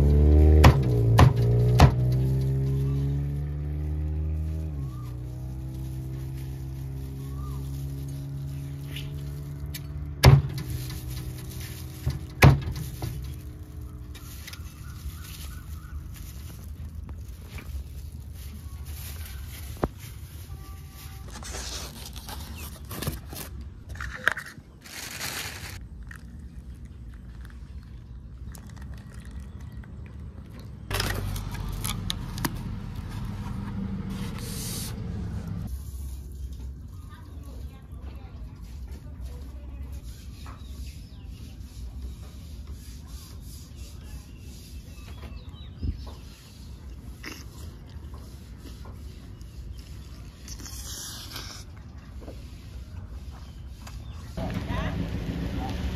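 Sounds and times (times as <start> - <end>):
styrofoam box clicks and scraping: 5.1 - 25.8.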